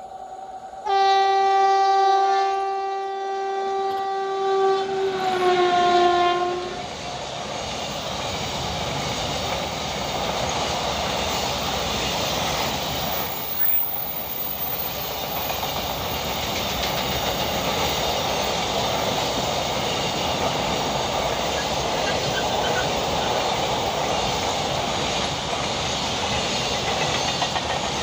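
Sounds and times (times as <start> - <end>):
freight train wheels rumbling: 0.0 - 28.0
locomotive air horn blast: 0.8 - 6.9.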